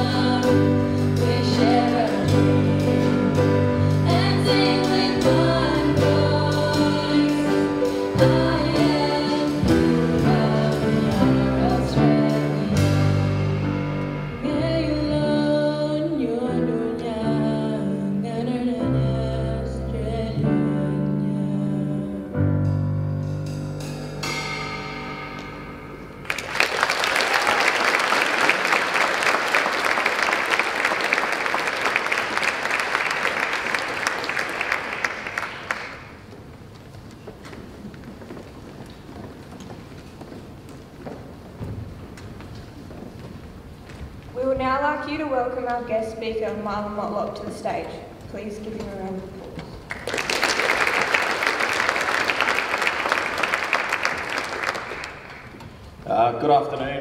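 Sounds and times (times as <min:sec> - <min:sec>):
choir singing: 0:00.0 - 0:12.8
singers on microphones: 0:00.0 - 0:13.2
audience applause: 0:26.2 - 0:36.3, 0:49.9 - 0:55.6.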